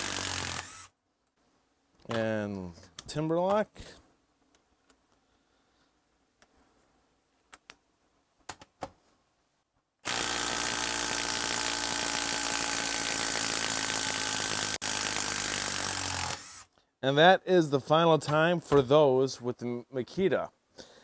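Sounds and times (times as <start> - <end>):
impact driver hammering screw into log: 0.0 - 0.9, 10.0 - 16.7.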